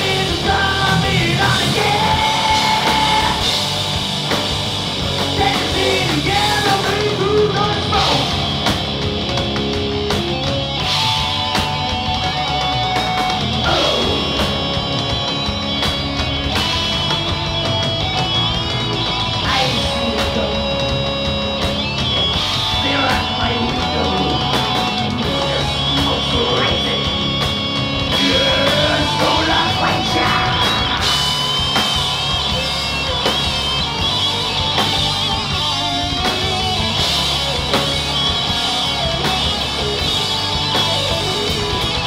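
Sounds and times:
live rock band playing: 0.0 - 42.0.

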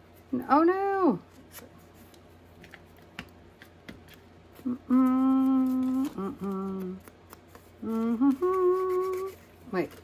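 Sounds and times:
woman humming long notes: 4.6 - 7.1, 7.8 - 9.4.

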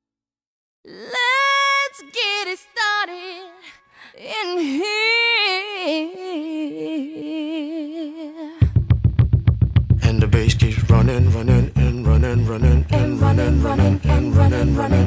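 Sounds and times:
woman singing unaccompanied: 0.9 - 8.6, 12.9 - 15.0.

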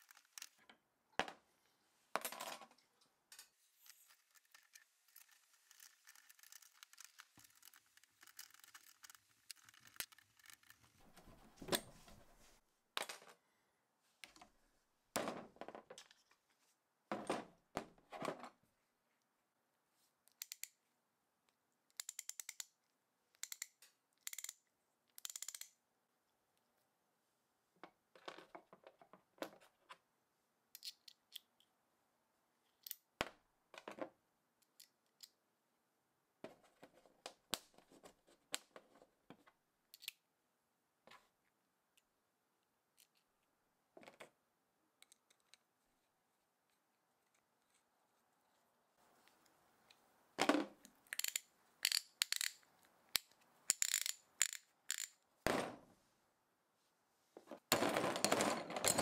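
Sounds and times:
metal parts clinking: 51.1 - 52.6, 53.7 - 55.2.

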